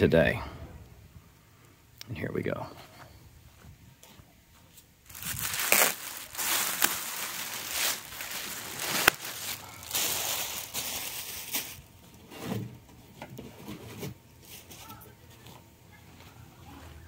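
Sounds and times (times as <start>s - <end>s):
sharp packaging snaps: 5.1s - 11.8s
packaging rustling and crinkling: 5.1s - 12.2s.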